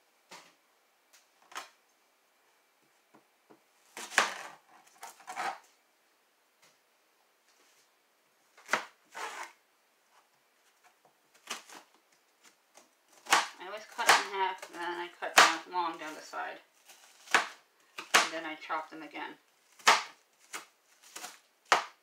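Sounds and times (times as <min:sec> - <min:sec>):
knife cutting onion on board: 0:17.0 - 0:18.4, 0:19.8 - 0:22.0.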